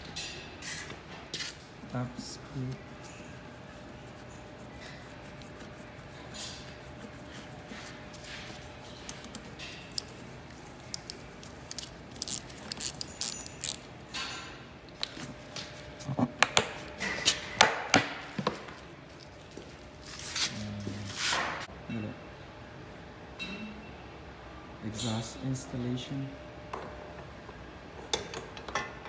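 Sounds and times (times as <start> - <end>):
metal tool clicks and clinks: 10.9 - 13.8.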